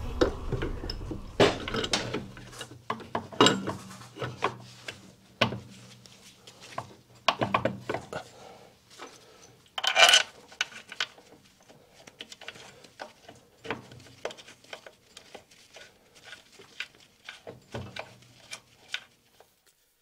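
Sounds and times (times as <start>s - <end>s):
loud clatter: 0.0s - 2.7s.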